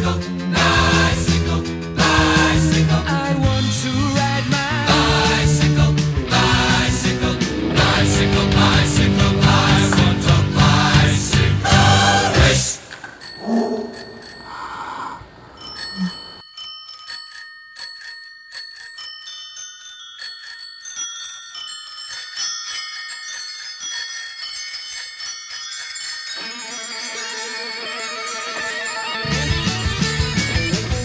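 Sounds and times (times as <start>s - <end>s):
guitar: 0.0s - 12.8s, 27.8s - 31.0s
rock band music: 0.2s - 12.6s, 29.0s - 31.0s
bicycle bells ringing: 13.0s - 31.0s.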